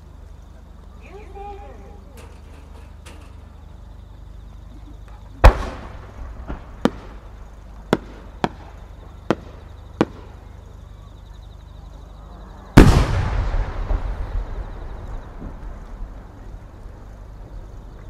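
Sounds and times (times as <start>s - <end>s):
rumble: 2.0s - 18.0s
firework launch thump: 5.4s - 7.2s, 12.8s - 16.0s
sharp firework cracks: 5.4s - 10.6s, 12.8s - 16.9s.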